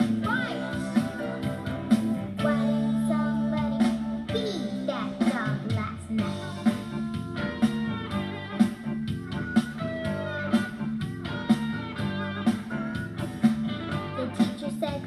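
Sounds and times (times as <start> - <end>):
upbeat pop music with guitar: 0.0 - 15.0.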